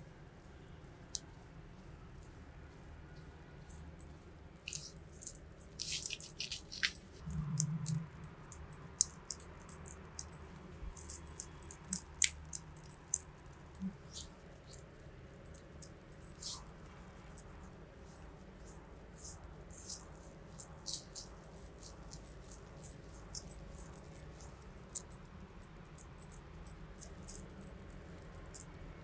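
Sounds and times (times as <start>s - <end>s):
wet sticky clicks of cream on skin: 5.7s - 7.3s.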